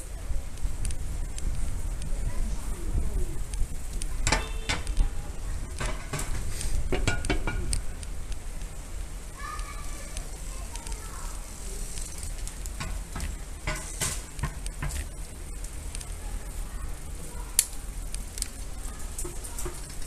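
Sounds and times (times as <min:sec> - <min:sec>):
bicycle rolling over stone paving: 0:00.0 - 0:20.0
clicks and rattles: 0:03.5 - 0:08.4, 0:17.5 - 0:20.0.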